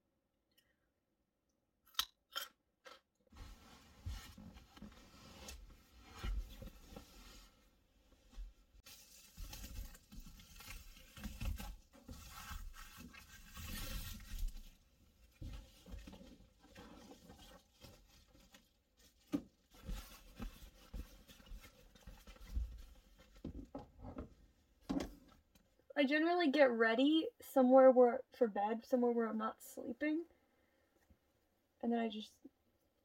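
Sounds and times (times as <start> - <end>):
fabric rustling and shuffling: 3.3 - 23.8.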